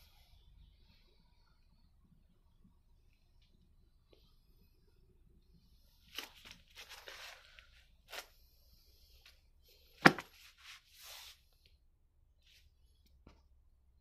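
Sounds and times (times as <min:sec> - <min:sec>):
plastic bags crinkling: 0:06.0 - 0:08.3.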